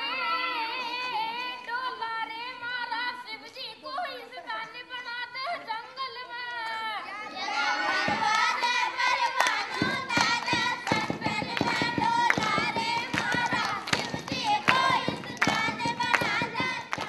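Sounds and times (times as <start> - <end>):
children singing: 0.0 - 3.4, 6.9 - 17.0
children clapping hands: 7.9 - 17.0.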